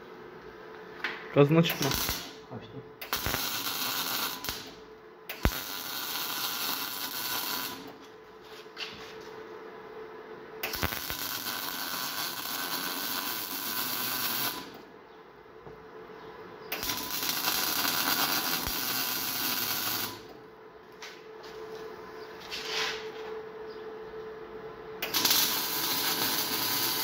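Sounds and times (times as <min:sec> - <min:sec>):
welder arc crackling: 0:01.4 - 0:08.1, 0:10.6 - 0:14.9, 0:16.7 - 0:20.4, 0:25.0 - 0:27.0.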